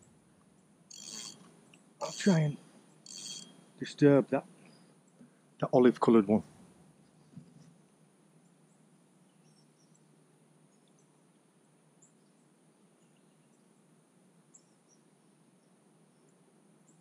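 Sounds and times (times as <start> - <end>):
faint high chirps: 0.9 - 3.9
steady high hiss: 0.9 - 4.5.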